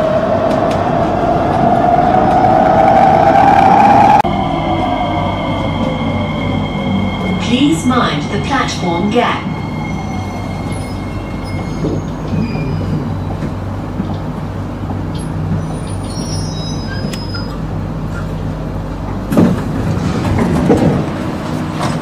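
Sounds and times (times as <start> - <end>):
faint high whines: 0.0 - 11.8
metro train running hum: 0.0 - 22.0.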